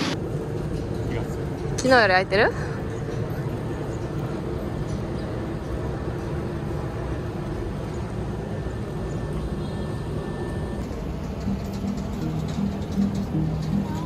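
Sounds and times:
motor vehicle rumble: 0.0 - 14.0.

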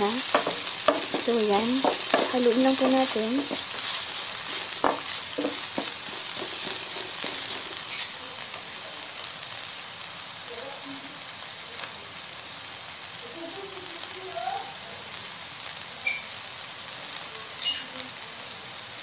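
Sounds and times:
vegetables sizzling in oil: 0.0 - 19.0
wooden spatula scraping pan: 0.2 - 8.1.

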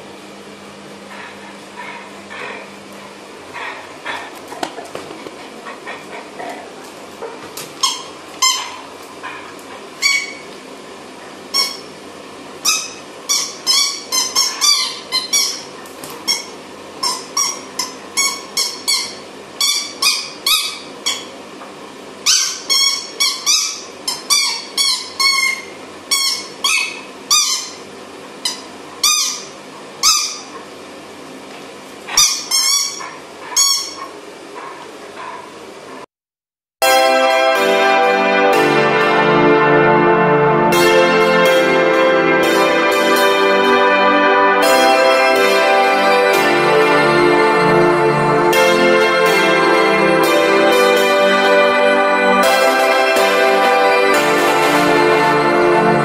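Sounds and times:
squeaky toy squeaking: 7.8 - 8.8, 11.6 - 11.9, 12.7 - 21.3, 22.3 - 27.8, 32.2 - 34.1.

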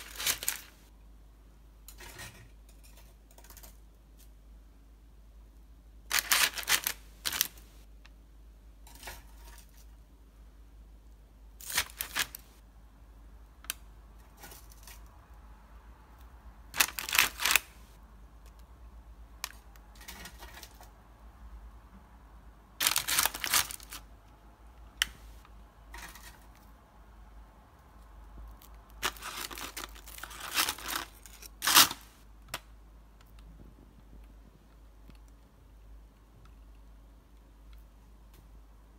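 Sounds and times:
parchment paper crinkling: 0.0 - 0.8, 6.1 - 7.7, 11.6 - 12.5, 16.8 - 17.9, 22.8 - 24.0, 28.6 - 32.2.

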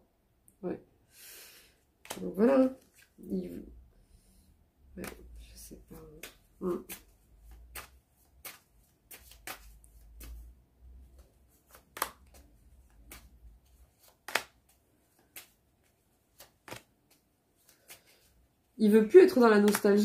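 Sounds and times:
cards shuffling: 2.0 - 3.3, 5.0 - 18.4, 19.0 - 20.0
card snaps: 6.1 - 10.4, 11.6 - 13.4, 14.0 - 15.6, 16.4 - 18.0, 19.6 - 19.8.

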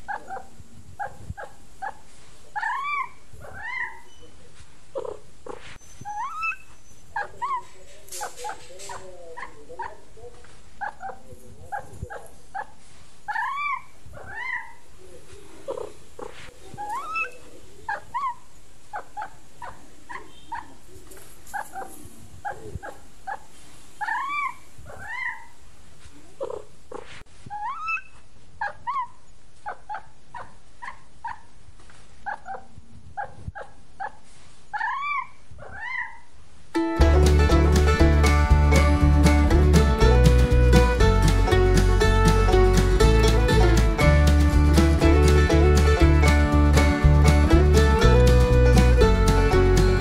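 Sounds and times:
music: 36.8 - 50.0.

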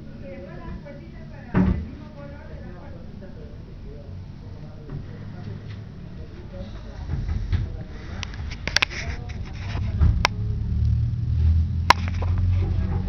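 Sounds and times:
sharp clicks and knocks: 11.9 - 13.0.

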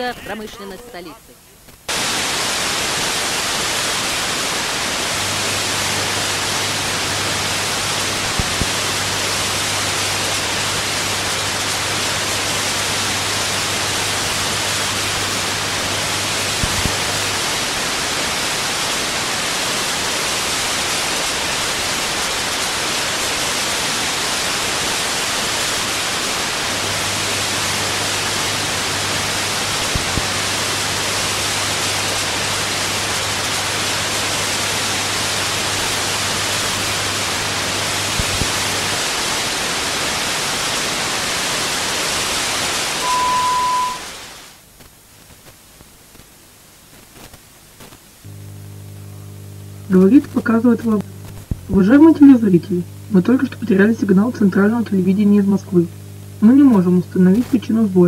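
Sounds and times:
television static hiss: 0.0 - 58.0
low hum: 43.0 - 44.2, 48.3 - 57.5.

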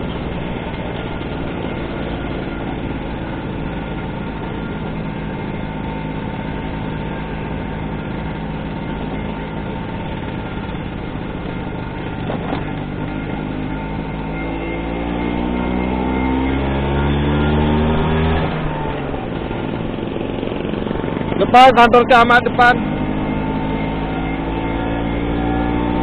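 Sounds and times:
scooter engine running: 0.0 - 26.0.

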